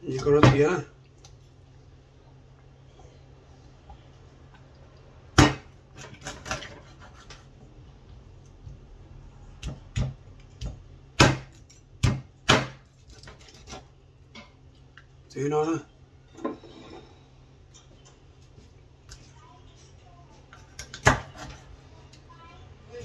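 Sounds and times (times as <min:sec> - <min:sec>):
knife chopping on wooden board: 0:09.6 - 0:12.8, 0:20.8 - 0:21.6.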